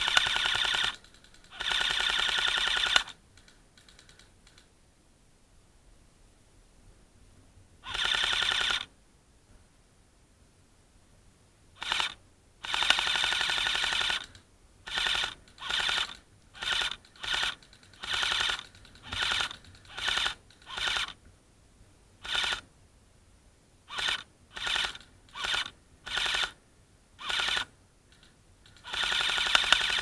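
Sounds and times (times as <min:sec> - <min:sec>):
airsoft rifle bursts: 0:00.0 - 0:04.6, 0:07.8 - 0:08.9, 0:11.8 - 0:21.2, 0:22.2 - 0:22.7, 0:23.9 - 0:26.6, 0:27.2 - 0:30.0.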